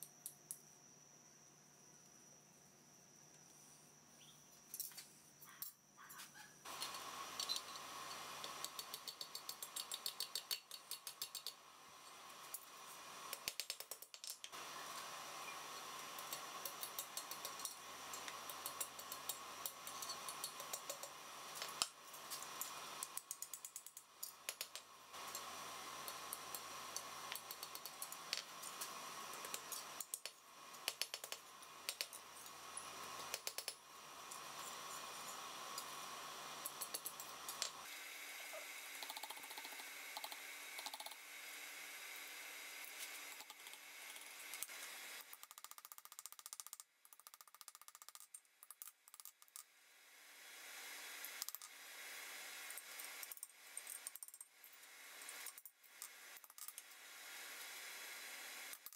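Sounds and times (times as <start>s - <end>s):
steady background hum: 0.0s - 45.2s.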